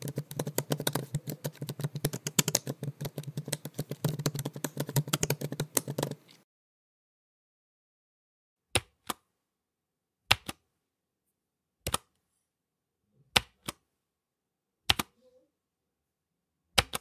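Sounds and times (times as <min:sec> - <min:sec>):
computer keyboard keystrokes: 0:00.0 - 0:06.4, 0:14.9 - 0:15.1, 0:16.8 - 0:17.0.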